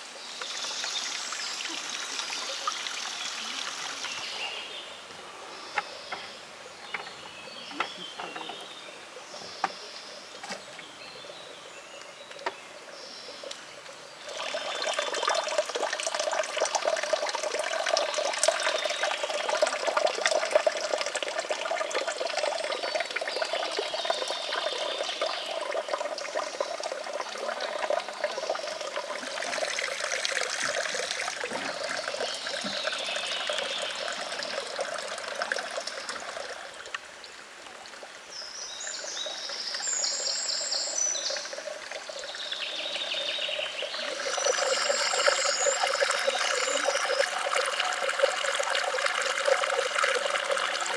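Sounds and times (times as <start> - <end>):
water splashing from a pipe: 14.2 - 37.2, 40.8 - 50.9.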